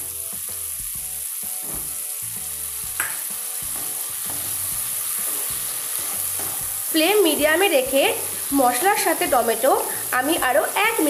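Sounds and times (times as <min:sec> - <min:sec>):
tomatoes sizzling in oil: 0:00.0 - 0:11.0
knock on pan: 0:01.6 - 0:02.0, 0:03.0 - 0:04.6, 0:06.4 - 0:06.7.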